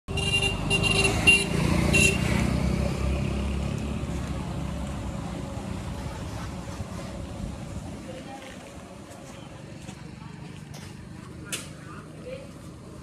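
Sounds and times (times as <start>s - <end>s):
vehicle horn tooting: 0.1s - 2.3s.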